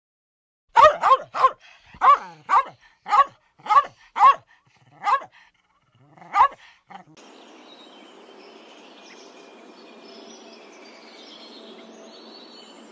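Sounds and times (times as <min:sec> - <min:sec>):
dog barking: 0:00.7 - 0:05.4, 0:06.2 - 0:07.2.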